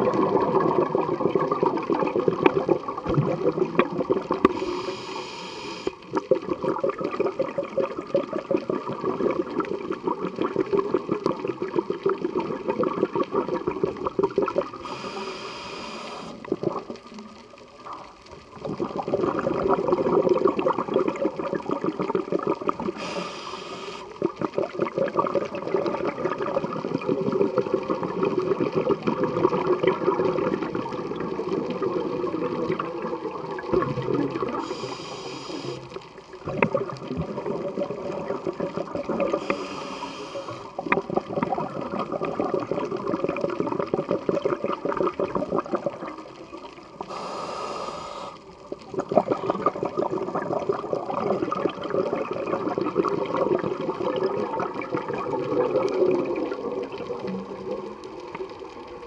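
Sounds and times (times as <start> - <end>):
exhaled bubbles gurgling: 0.0 - 59.0
hissing regulator inhalations: 4.4 - 6.0, 14.8 - 16.5, 22.9 - 24.2, 34.6 - 36.0, 39.3 - 40.8, 47.0 - 48.5.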